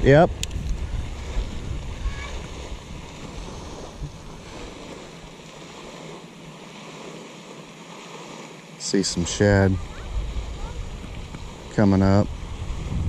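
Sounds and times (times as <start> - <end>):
wind buffeting microphone: 0.0 - 6.2, 9.0 - 13.0.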